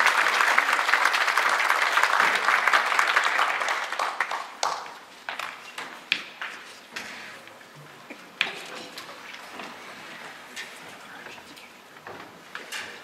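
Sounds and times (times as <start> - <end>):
audience applause: 0.0 - 5.1.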